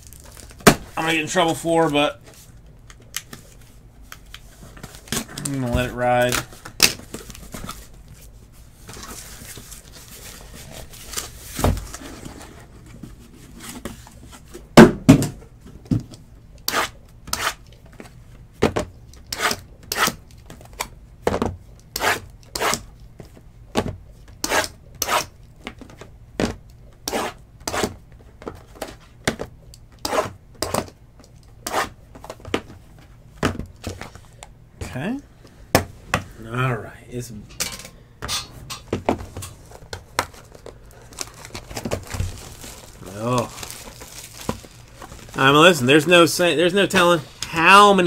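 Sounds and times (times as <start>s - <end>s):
packaging rustling: 0.0s - 2.6s, 39.1s - 48.0s.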